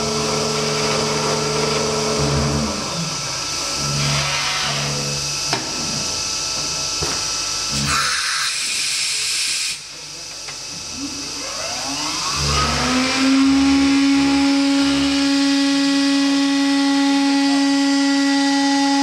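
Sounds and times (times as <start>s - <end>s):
spindle motor whine: 0.0s - 9.3s, 9.9s - 19.0s
low pulses: 10.9s - 19.0s.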